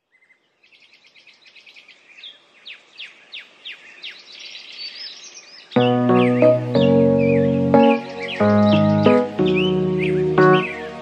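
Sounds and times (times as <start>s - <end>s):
birds chirping and calling: 0.1s - 11.0s
music: 5.8s - 11.0s.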